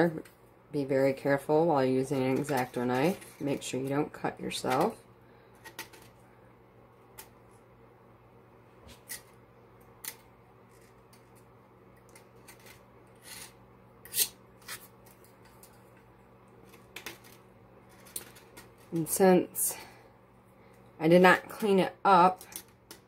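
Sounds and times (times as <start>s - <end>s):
knife scraping steel tumbler: 2.0s - 3.9s, 12.0s - 15.0s.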